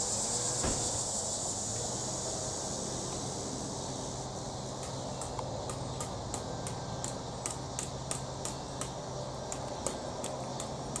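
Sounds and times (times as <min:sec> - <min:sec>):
distant propeller plane droning: 0:00.0 - 0:11.0
sharp high ticks: 0:04.8 - 0:11.0.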